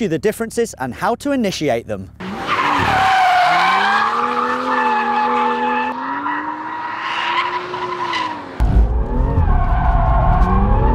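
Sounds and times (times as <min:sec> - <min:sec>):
car engine rumbling: 0:02.0 - 0:10.9
tyres squealing: 0:02.3 - 0:08.6.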